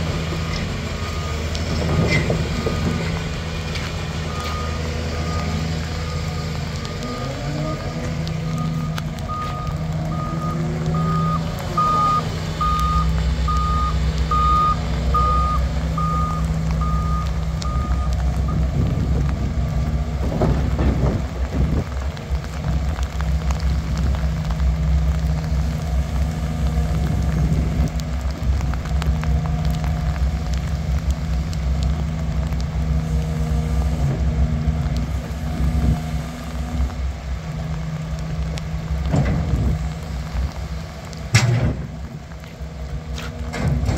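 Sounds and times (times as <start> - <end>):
excavator engine and hydraulics: 0.0 - 43.9.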